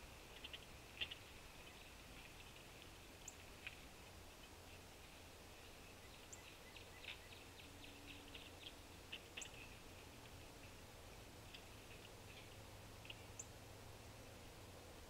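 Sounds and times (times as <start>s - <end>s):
woodpecker tapping: 0.3s - 4.2s, 6.1s - 10.8s.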